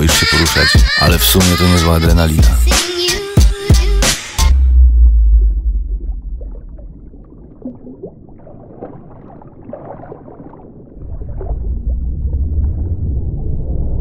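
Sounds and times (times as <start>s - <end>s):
deep low rumble: 4.5s - 8.4s, 10.9s - 14.0s
water gurgling and lapping: 5.5s - 14.0s
small water splashes: 6.1s - 12.0s.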